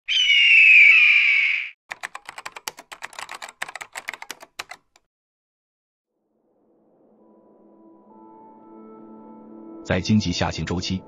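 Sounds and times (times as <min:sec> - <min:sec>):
keyboard typing: 0:01.9 - 0:05.1.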